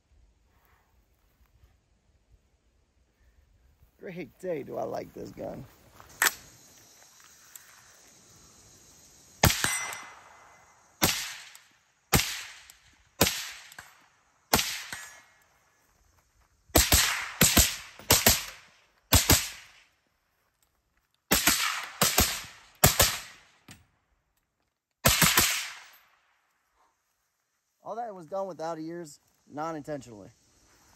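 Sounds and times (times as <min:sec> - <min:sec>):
suppressed rifle shots: 0:09.4 - 0:10.4, 0:11.0 - 0:15.2, 0:25.0 - 0:26.0.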